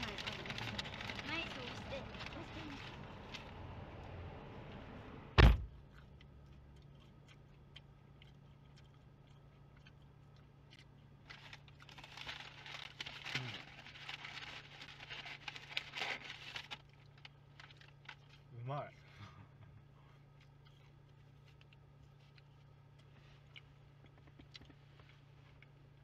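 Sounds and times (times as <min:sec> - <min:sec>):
paper bag crinkling: 0:00.0 - 0:03.5, 0:11.3 - 0:18.2
low hum inside car: 0:00.0 - 0:26.0
car door shutting: 0:05.3 - 0:05.7.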